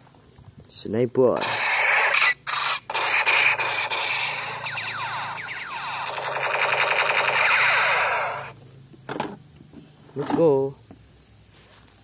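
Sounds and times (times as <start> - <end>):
toy gun sound effect: 1.4 - 8.5.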